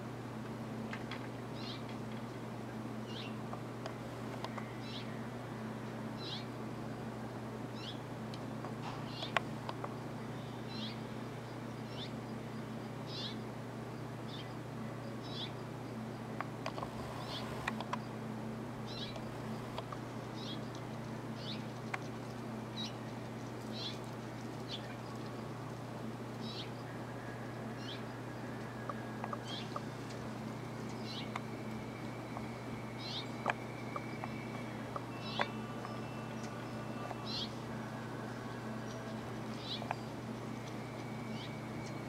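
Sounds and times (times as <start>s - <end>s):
steady low hum: 0.0s - 42.0s
small bird chirping: 18.9s - 19.7s, 23.7s - 25.3s, 30.8s - 31.4s, 32.3s - 37.6s.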